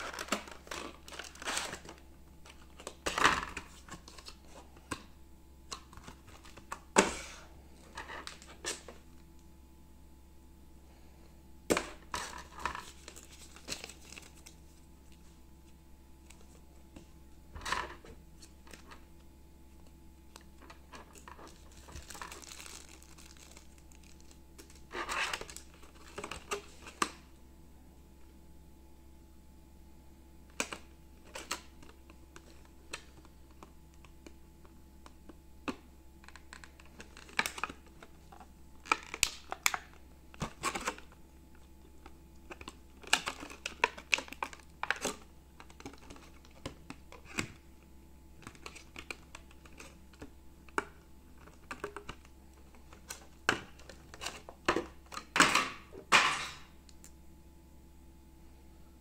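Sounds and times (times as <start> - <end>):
plastic packaging clicks and crinkles: 0.0 - 5.1, 11.7 - 14.6, 20.3 - 27.2, 30.5 - 34.4, 35.0 - 47.6, 48.4 - 55.8
steady low hum: 0.0 - 59.0.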